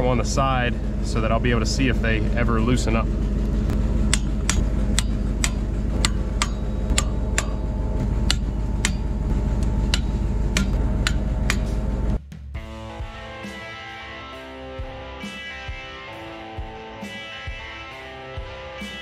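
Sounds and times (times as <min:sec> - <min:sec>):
truck engine idling: 0:00.0 - 0:13.5.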